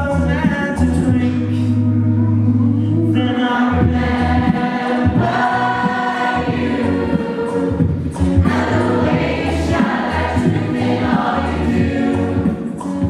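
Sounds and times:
vocal percussive beats: 0.0 - 13.0
male a cappella group singing: 2.6 - 13.0.

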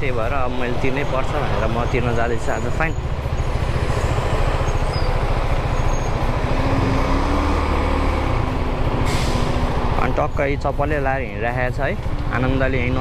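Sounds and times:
motorcycle engine throbbing: 0.0 - 13.0
traffic hum: 0.0 - 13.0.

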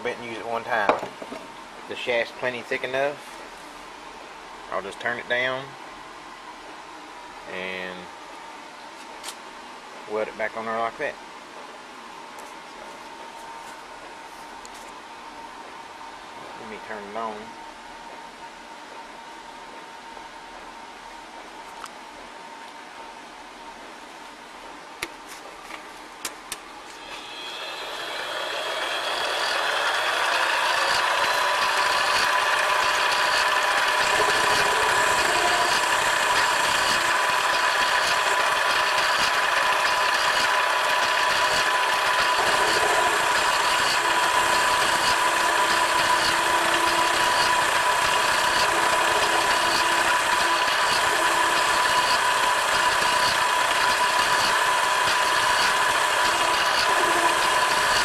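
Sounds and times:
lathe motor whining: 26.9 - 58.0
lathe clicks: 28.3 - 58.0.

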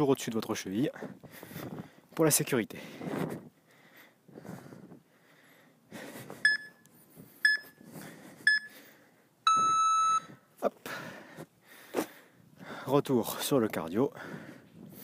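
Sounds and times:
timer long low beep: 6.4 - 7.8, 8.5 - 8.8, 9.4 - 10.4
timer short beeps: 6.4 - 7.8, 8.5 - 8.8, 9.5 - 10.3.

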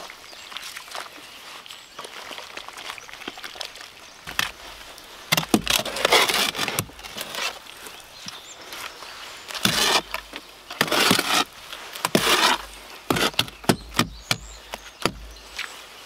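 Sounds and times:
shovel scraping wet concrete: 5.3 - 7.6, 9.5 - 15.7.

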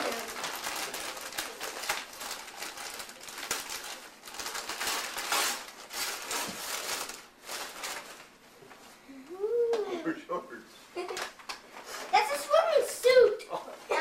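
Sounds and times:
wrapping paper rustling and tearing: 0.0 - 8.4.

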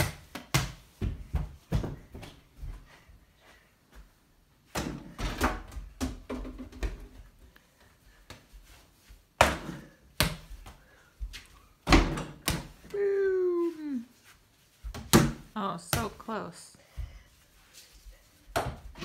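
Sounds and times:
basketball bouncing on floor: 0.0 - 2.3.

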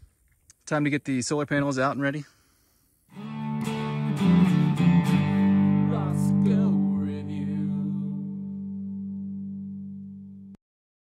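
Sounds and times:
guitar chords strummed: 3.1 - 10.6.

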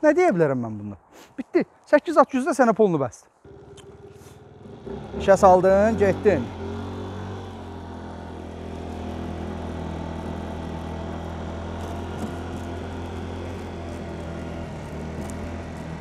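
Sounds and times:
moped engine running: 3.5 - 16.0.

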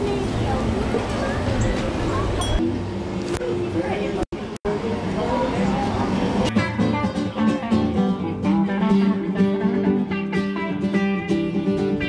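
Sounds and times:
acoustic guitar strumming: 6.4 - 12.0.

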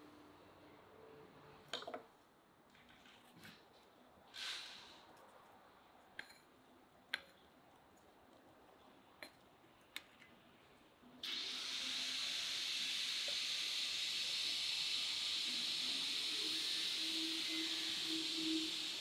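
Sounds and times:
loud steady hiss: 4.4 - 5.1, 11.2 - 19.0.

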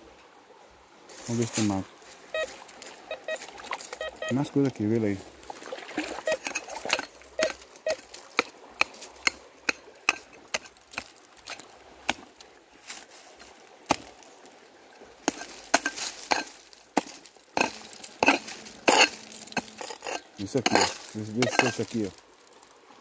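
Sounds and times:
hoe scraping soil: 5.2 - 14.4, 15.2 - 22.3
hoe chopping into dry soil: 6.1 - 12.3, 13.9 - 14.2, 15.2 - 22.0.

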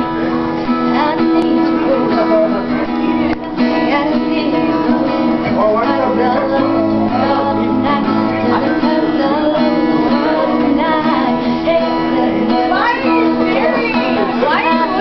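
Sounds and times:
acoustic guitar chords: 0.0 - 15.0
young woman singing: 0.7 - 15.0.

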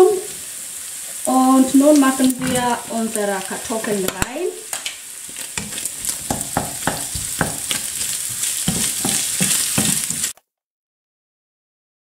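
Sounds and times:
food sizzling in a frying pan: 0.0 - 10.4
wooden spatula scraping: 2.2 - 4.3, 5.2 - 10.4.

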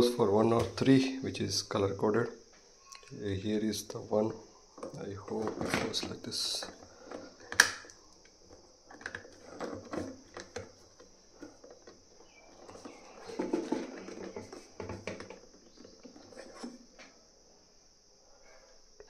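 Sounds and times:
plastic rubbing: 4.2 - 17.0
plastic parts clicking: 4.8 - 8.0, 8.9 - 12.0.

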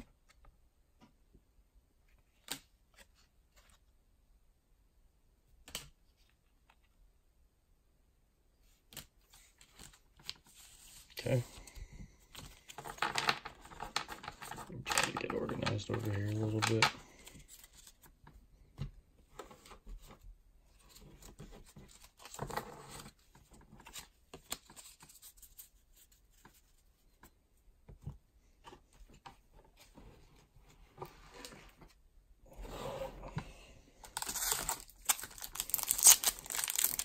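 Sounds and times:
cards rustling and tapping: 8.9 - 19.8, 34.0 - 37.0
crinkly wrapper tearing: 34.1 - 37.0.

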